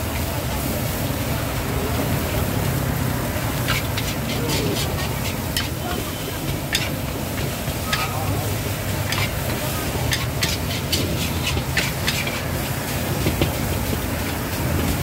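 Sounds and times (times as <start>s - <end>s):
metal utensils clinking on cookware: 3.6s - 13.6s.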